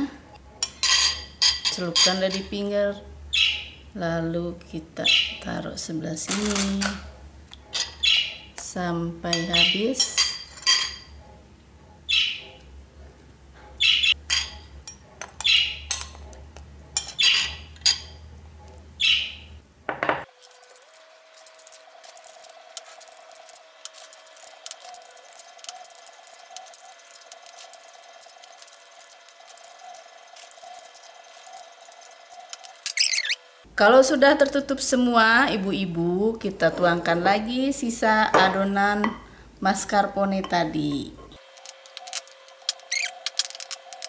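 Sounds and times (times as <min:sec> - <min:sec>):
metal spoon clinking porcelain bowl: 0:00.6 - 0:02.4, 0:09.3 - 0:11.1, 0:14.3 - 0:16.3, 0:17.0 - 0:18.2.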